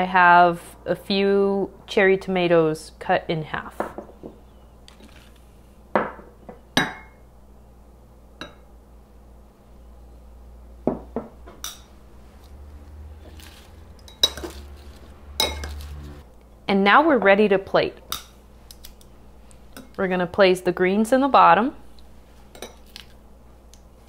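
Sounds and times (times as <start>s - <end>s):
glass and ceramic bowls clinking: 6.8s - 7.2s, 14.0s - 15.9s.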